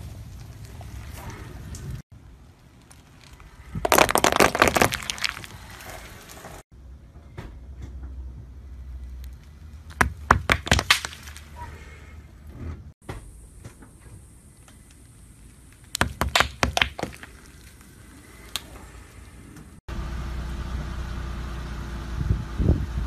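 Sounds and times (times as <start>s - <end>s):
paintballs cracking under tyre: 2.5s - 6.4s, 9.2s - 11.6s, 15.7s - 18.7s.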